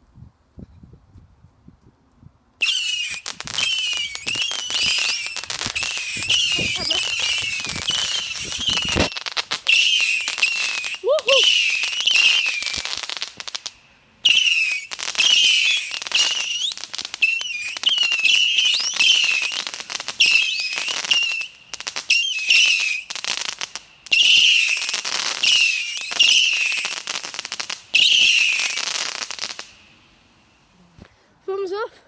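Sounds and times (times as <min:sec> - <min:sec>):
crackling firework pops: 0:02.6 - 0:29.9
whistling firework missiles: 0:02.6 - 0:30.0.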